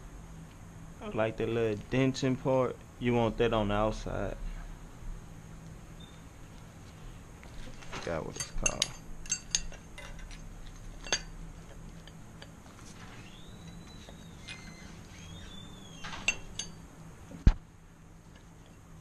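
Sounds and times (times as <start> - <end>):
metal sprocket clinking and scraping: 8.3 - 12.5.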